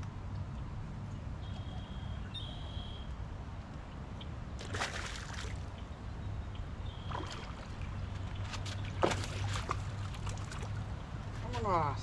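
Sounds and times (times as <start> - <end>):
fish splashing at water surface: 4.6 - 5.6, 7.1 - 10.9.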